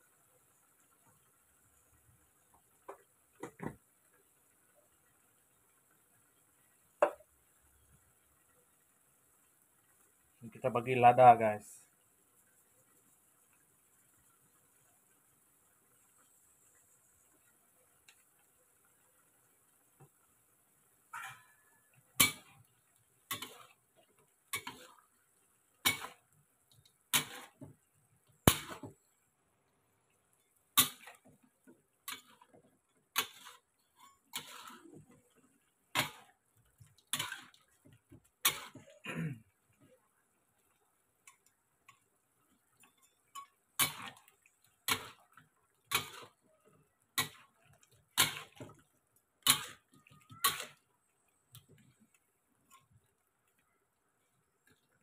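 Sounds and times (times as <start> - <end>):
metal spatula scraping a wok: 21.2 - 22.6, 23.3 - 23.8, 24.5 - 25.0, 25.8 - 26.2, 27.1 - 27.7, 32.0 - 35.3, 36.0 - 36.3, 37.0 - 37.7, 38.4 - 38.9, 42.8 - 46.4, 47.2 - 48.7, 49.4 - 49.8, 50.4 - 50.8.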